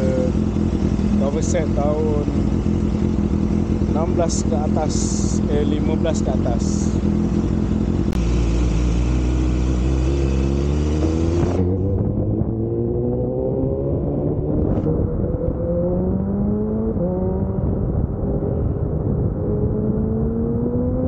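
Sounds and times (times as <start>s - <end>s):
motorcycle engine revving: 0.0s - 21.0s.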